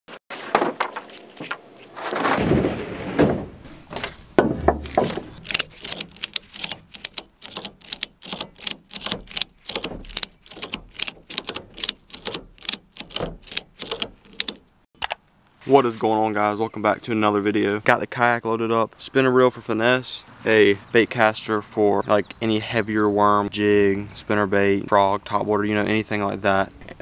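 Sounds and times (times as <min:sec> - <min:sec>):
plastic kayak scraping: 0:00.3 - 0:07.0
heavy thump: 0:02.3 - 0:05.4
ratchet strap clicking: 0:05.3 - 0:15.2.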